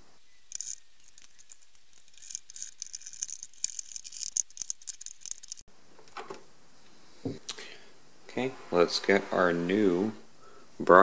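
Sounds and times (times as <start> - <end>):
handling rattle: 0.5 - 5.6.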